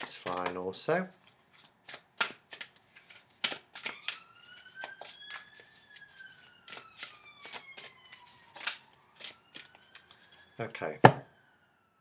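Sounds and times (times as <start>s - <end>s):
cards being shuffled: 0.0s - 10.4s
siren wailing: 3.8s - 12.0s.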